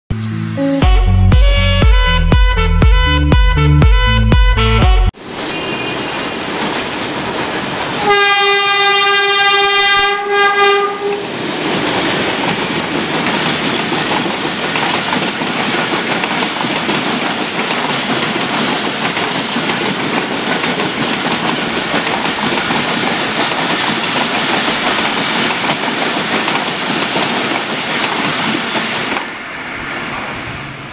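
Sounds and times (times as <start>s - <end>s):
locomotive horn: 0.5s - 6.0s, 8.0s - 11.2s
train wheels clattering on rails: 5.3s - 9.1s, 11.0s - 30.8s.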